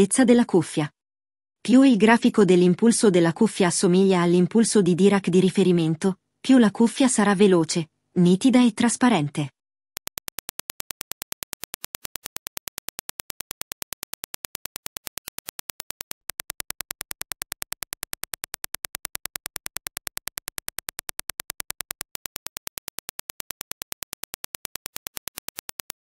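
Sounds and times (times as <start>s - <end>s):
rapid sharp test clicks: 10.0s - 26.0s.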